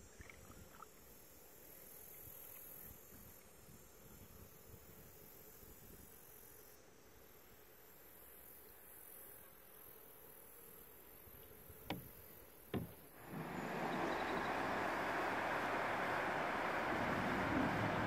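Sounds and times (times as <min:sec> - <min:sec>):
paddle knocking on canoe hull: 0:12.7 - 0:18.0
river rapids rushing: 0:13.2 - 0:18.0.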